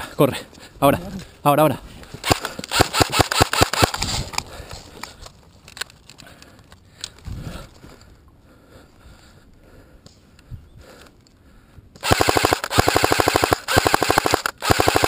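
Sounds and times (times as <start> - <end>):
sharp clicks: 2.2 - 7.2, 12.0 - 15.0
rustling in dry grass: 3.8 - 6.1.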